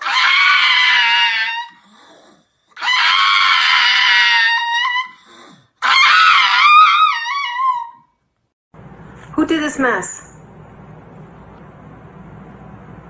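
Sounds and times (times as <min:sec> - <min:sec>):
dog howling: 0:00.0 - 0:08.1.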